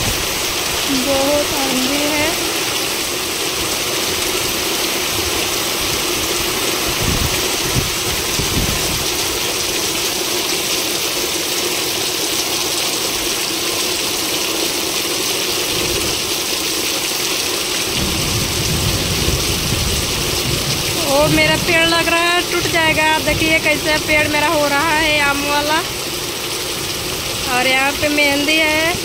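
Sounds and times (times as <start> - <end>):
heavy rain on metal roofs: 0.0 - 29.0
wind buffets on microphone: 6.8 - 9.1, 18.0 - 21.8.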